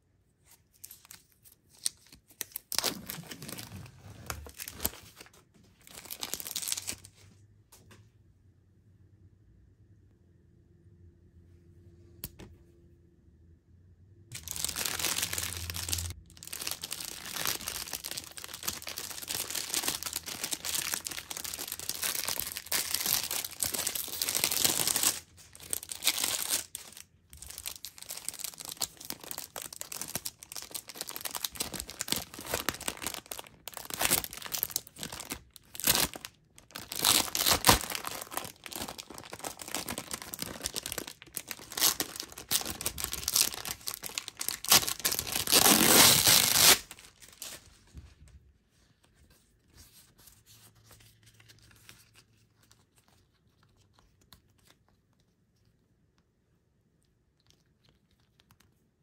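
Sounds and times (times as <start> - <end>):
plastic wrapper crinkling: 0.4 - 7.2, 14.3 - 48.3
sticky sheet peeling from plastic: 14.3 - 47.7.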